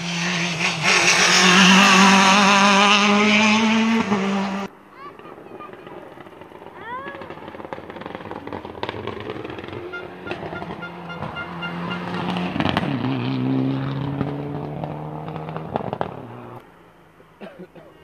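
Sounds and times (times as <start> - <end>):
rally car engine revving past: 0.0 - 4.7, 6.1 - 16.6
sharp cracks: 5.0 - 13.0.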